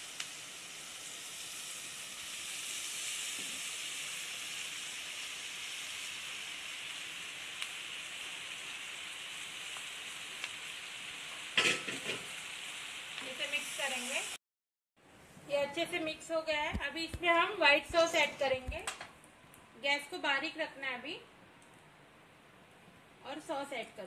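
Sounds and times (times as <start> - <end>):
vegetables sizzling in oil: 0.0 - 14.4, 15.5 - 18.7
spatula knocking and scraping pan: 11.6 - 12.3.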